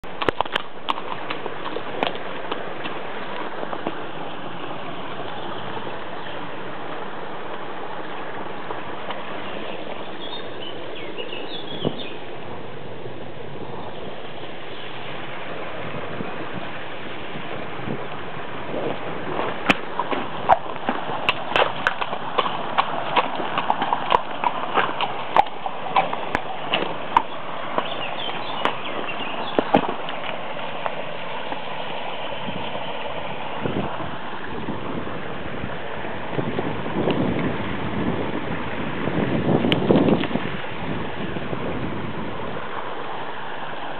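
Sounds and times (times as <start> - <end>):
horse hooves on stones: 0.0 - 10.5, 17.6 - 35.0, 39.5 - 40.5
rushing water: 0.0 - 43.9.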